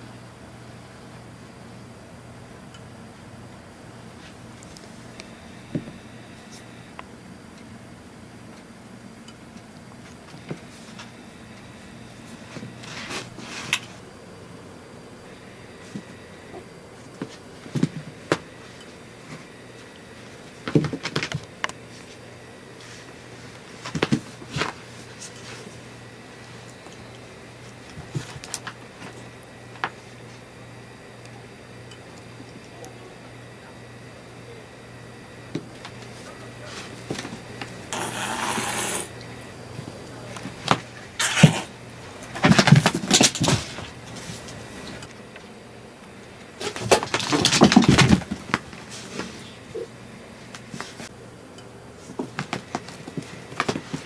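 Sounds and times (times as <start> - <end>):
low room hum: 0.0 - 54.0
cat hissing: 37.9 - 39.1, 41.2 - 41.7.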